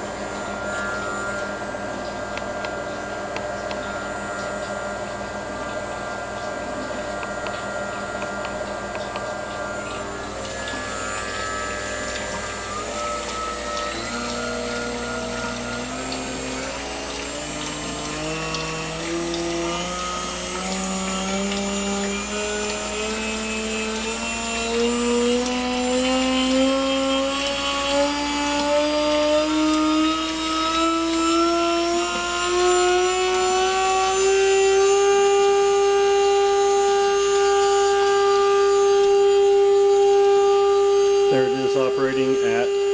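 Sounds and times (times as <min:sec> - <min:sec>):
spindle motor whining: 0:00.0 - 0:42.9.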